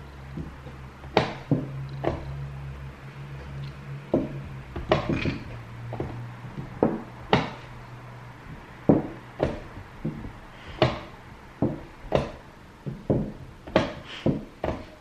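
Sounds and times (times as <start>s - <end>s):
hands slapping chess clock: 0.4s - 2.4s, 3.5s - 7.8s, 8.5s - 15.0s
chess pieces knocking on board: 4.1s - 7.6s, 8.5s - 15.0s.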